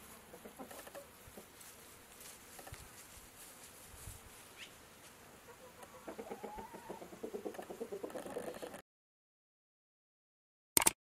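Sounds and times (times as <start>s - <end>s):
hen clucking: 0.3s - 1.5s, 5.4s - 8.8s
chickens foraging soft ticks: 0.3s - 3.7s, 4.4s - 8.8s.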